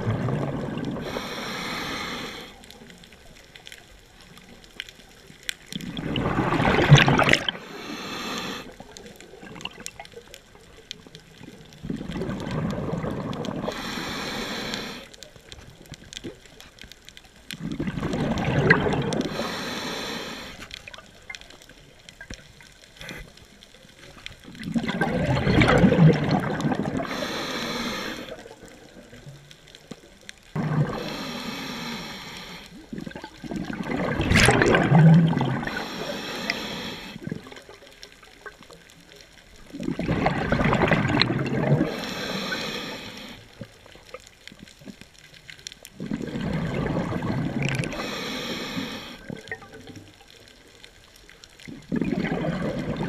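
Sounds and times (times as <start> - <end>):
exhaled bubbles rushing: 0.0 - 1.2, 5.7 - 7.7, 8.8 - 10.1, 11.7 - 13.8, 17.6 - 19.5, 24.4 - 27.2, 30.6 - 31.1, 32.9 - 35.9, 39.6 - 42.1, 46.0 - 48.0, 51.6 - 53.0
regulator inhale hiss: 1.0 - 3.0, 7.5 - 8.9, 13.6 - 15.2, 19.1 - 20.8, 27.0 - 28.6, 30.6 - 32.9, 35.6 - 37.3, 41.8 - 43.7, 47.7 - 49.4.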